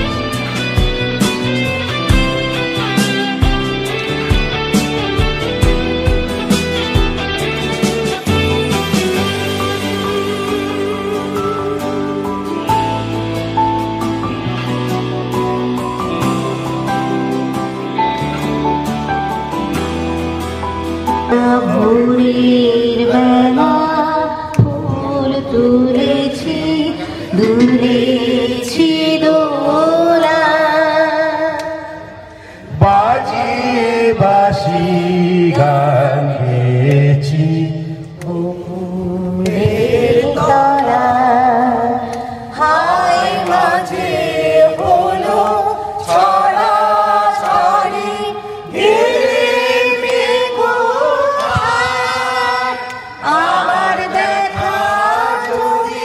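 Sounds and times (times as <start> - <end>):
group of people singing: 9.1 - 13.0, 21.3 - 56.0.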